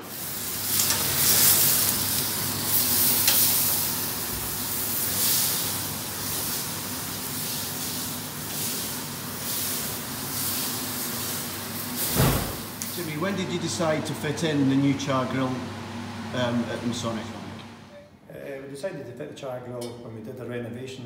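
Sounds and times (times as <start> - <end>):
steaks sizzling on a grill: 0.0 - 13.0.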